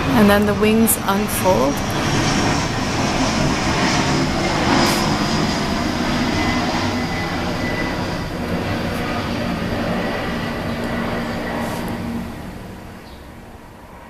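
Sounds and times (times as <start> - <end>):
distant engine rumble: 0.0 - 14.0.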